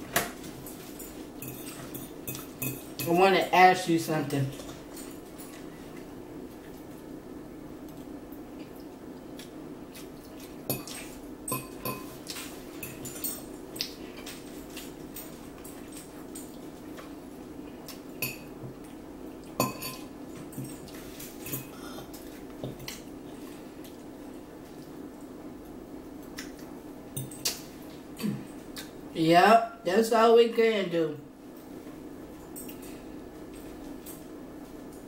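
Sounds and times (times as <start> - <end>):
steady low hum: 0.0 - 35.0
fork clinking against a plate: 1.0 - 3.2, 10.6 - 14.9, 19.6 - 21.7.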